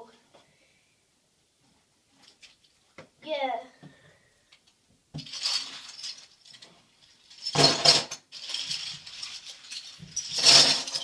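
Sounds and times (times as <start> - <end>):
metal bottle caps clattering: 7.3 - 11.0.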